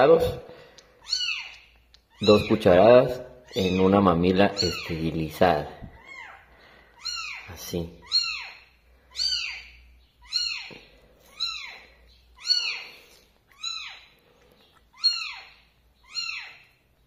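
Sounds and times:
kitten mewing: 0:03.4 - 0:05.0.

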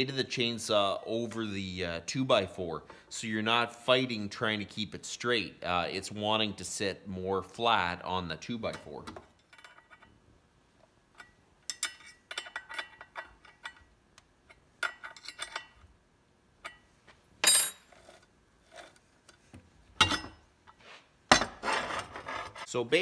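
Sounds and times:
metal clinks and scrapes: 0:09.4 - 0:10.2, 0:11.1 - 0:13.9, 0:14.5 - 0:15.9, 0:16.6 - 0:19.4.

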